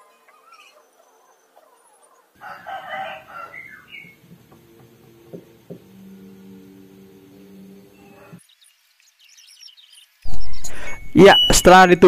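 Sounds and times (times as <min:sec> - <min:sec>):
rooster crowing: 0:02.4 - 0:04.2
washing machine motor humming: 0:04.0 - 0:08.4.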